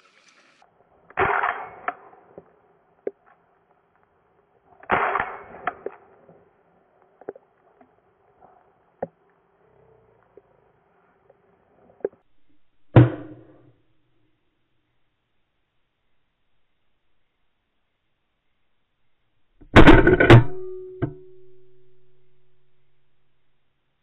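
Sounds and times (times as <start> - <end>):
shotgun shots: 1.2 - 2.2, 4.9 - 6.1.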